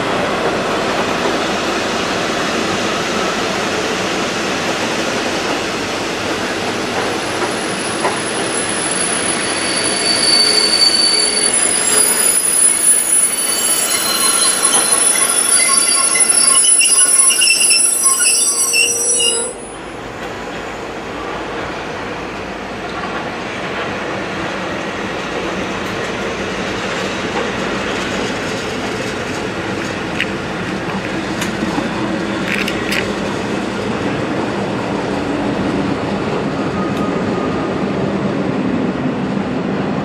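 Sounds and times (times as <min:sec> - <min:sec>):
train carriages rolling past: 0:00.0 - 0:40.0
train wheels squealing: 0:07.0 - 0:20.0.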